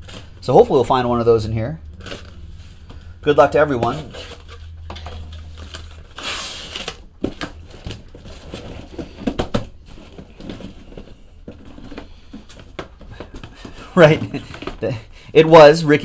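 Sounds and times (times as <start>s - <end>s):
cardboard rustling: 0.0s - 1.1s, 1.9s - 15.0s
cardboard tearing: 3.8s - 9.2s.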